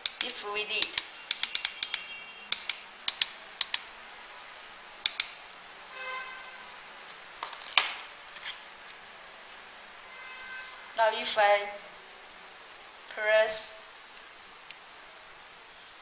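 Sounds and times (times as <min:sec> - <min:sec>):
plastic push-buttons clicking: 0:00.0 - 0:03.9, 0:05.1 - 0:05.4.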